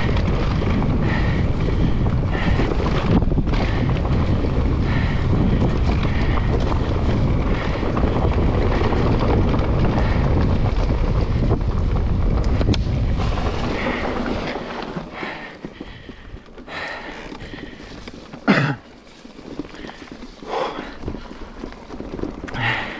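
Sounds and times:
wind rushing over microphone: 0.0s - 18.1s
bike clicks and knocks: 0.0s - 22.9s
bike tyre roar on dirt: 0.0s - 22.9s.

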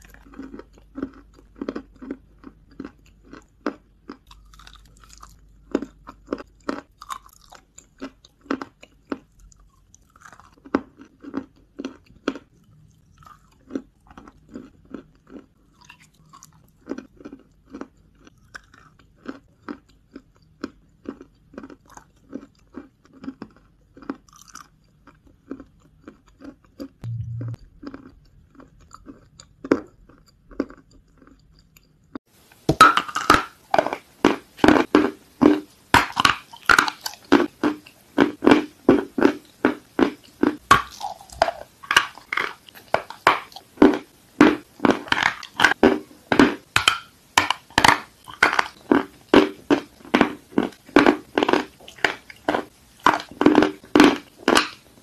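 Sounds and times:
chewing crunchy clay paste: 0.0s - 55.0s
wet mouth sounds: 26.8s - 31.7s, 32.5s - 55.0s.

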